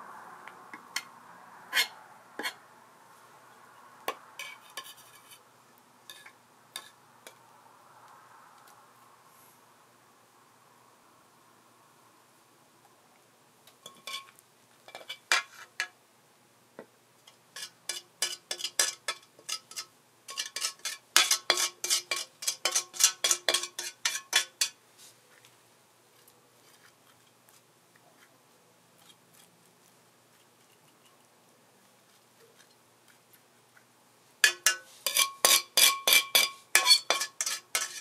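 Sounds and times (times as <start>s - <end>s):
metal utensils clinking on dish: 13.8s - 14.3s, 17.6s - 24.8s, 34.4s - 38.0s.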